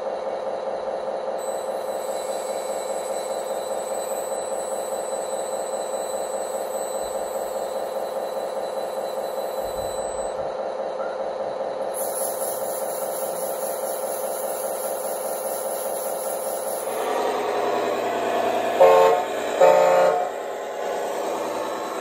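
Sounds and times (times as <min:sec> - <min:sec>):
simulated tractor engine sound: 0:00.0 - 0:22.0
horn toots: 0:18.7 - 0:20.4.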